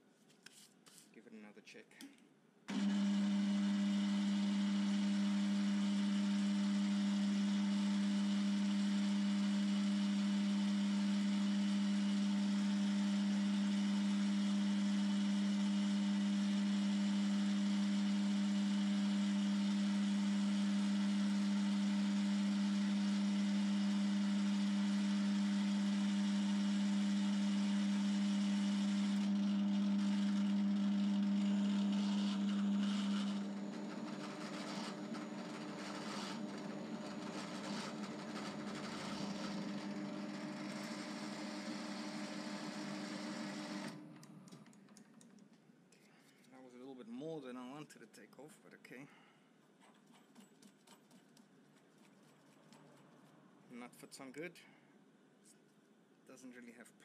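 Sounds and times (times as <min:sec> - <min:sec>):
bench lathe humming: 0:02.7 - 0:44.7.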